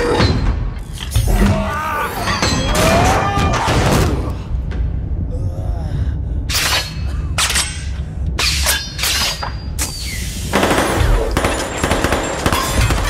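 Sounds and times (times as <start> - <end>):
low rumble: 2.8 - 9.8.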